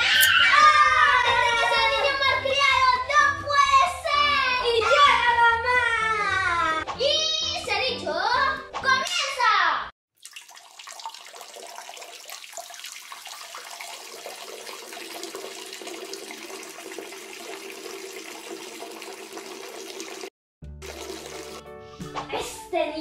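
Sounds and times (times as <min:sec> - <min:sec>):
running water: 0:10.2 - 0:21.7.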